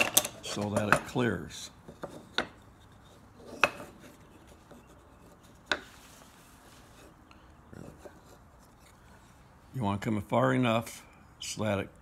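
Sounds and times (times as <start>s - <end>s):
faint rubbing of wooden pieces: 1.8s - 9.6s.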